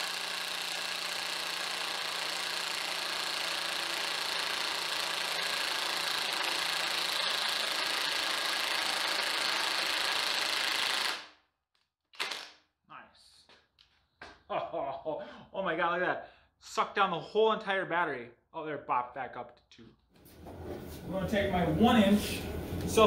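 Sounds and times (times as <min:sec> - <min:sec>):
impact wrench hammering: 0:00.0 - 0:11.3.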